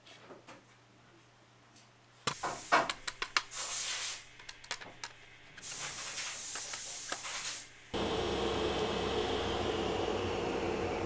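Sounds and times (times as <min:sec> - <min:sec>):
plastic clicks: 0:02.8 - 0:03.5, 0:04.4 - 0:05.6.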